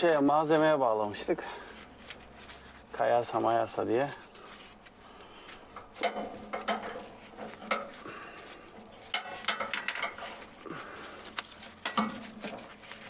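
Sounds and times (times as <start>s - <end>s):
metal clinking and knocking: 9.1s - 10.4s, 11.8s - 12.5s.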